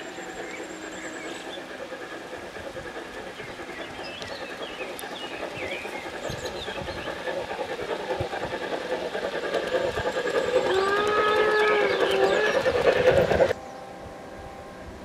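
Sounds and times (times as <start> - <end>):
model train rattling hum: 0.0 - 15.0
train whistle: 10.6 - 13.5.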